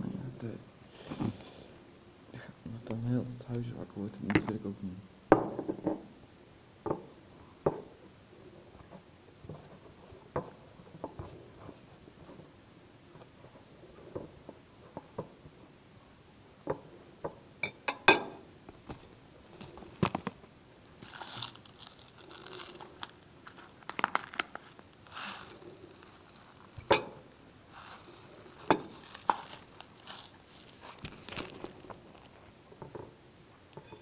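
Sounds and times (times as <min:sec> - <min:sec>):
food packaging rustling: 0:18.8 - 0:32.6.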